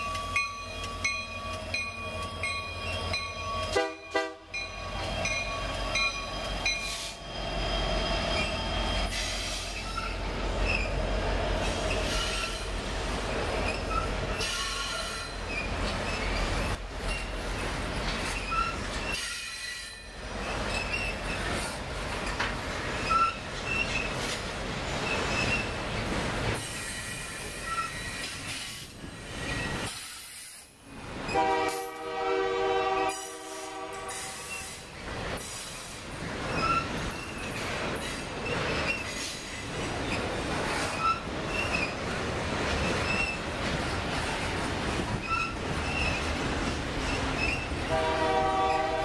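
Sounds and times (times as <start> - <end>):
freight train wheels on rails: 0.0 - 49.0
train horn chord: 3.7 - 4.6, 31.4 - 34.4, 47.9 - 49.0
high wheel squeaks: 4.6 - 11.0, 13.6 - 17.4, 18.0 - 25.8, 26.8 - 29.9, 36.4 - 42.0, 42.8 - 43.5, 45.2 - 46.3, 47.0 - 47.8.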